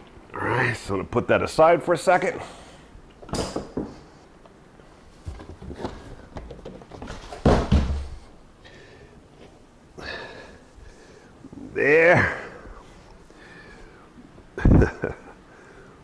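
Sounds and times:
cardboard box thudding down: 7.0 - 8.1.

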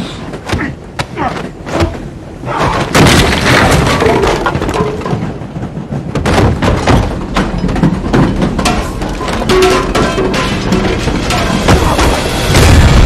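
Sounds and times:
wood cracking and splintering: 2.5 - 5.5
glass breaking: 7.6 - 13.0.

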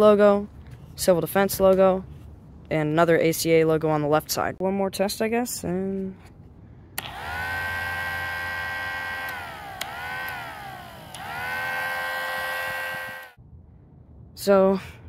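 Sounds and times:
low motor hum: 6.4 - 13.5
miniature mechanical siren wailing: 7.1 - 13.4.

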